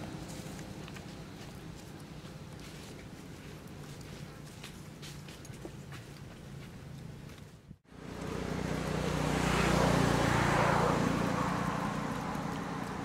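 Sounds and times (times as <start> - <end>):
motor vehicle passing by: 6.4 - 13.0.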